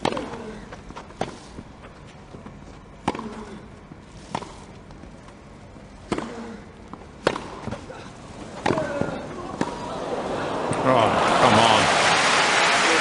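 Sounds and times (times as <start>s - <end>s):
tennis racket striking ball: 3.0s - 3.6s, 6.0s - 7.8s, 8.6s - 9.8s.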